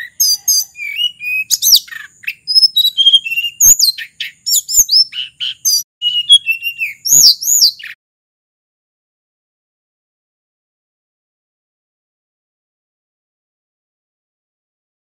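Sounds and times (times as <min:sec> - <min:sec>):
bird singing high whistled notes: 0:00.0 - 0:08.0.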